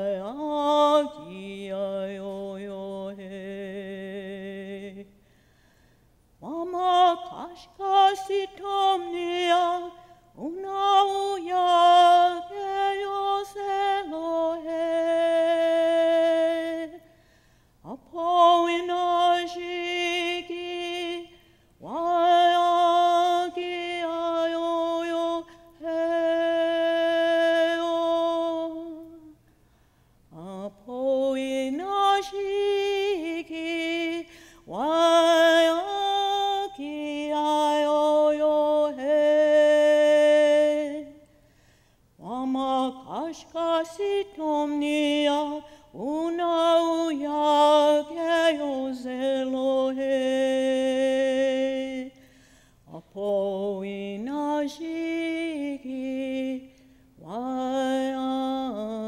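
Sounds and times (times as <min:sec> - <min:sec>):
woman singing unaccompanied: 0:00.0 - 0:05.2, 0:06.4 - 0:17.2, 0:17.8 - 0:29.5, 0:30.3 - 0:41.4, 0:42.2 - 0:52.2, 0:52.9 - 0:59.0.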